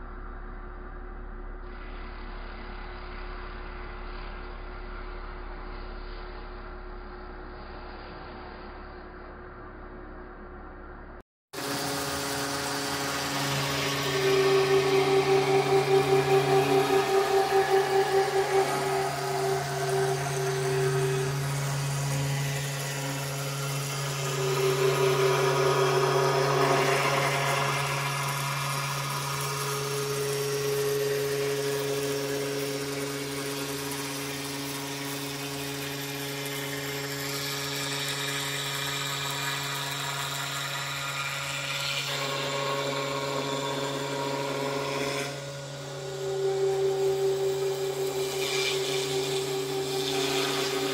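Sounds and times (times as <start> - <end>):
low motor hum: 0.0 - 50.9
higher machine tones: 11.6 - 35.2, 42.2 - 50.9
cutter hissing through foam: 11.6 - 50.9.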